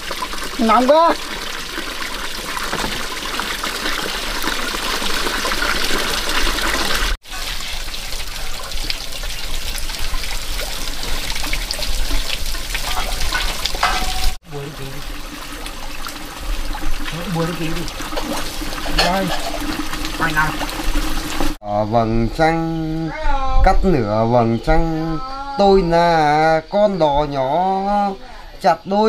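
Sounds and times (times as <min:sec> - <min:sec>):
water running and splashing: 0:00.0 - 0:21.6.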